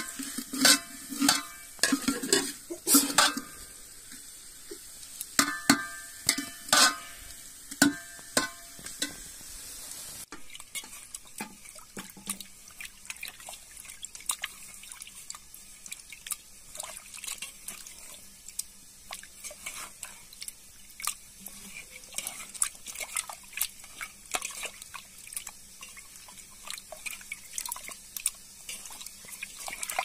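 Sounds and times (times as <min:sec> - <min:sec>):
pot sizzling: 0:00.0 - 0:30.0
small water splashes: 0:10.3 - 0:30.0.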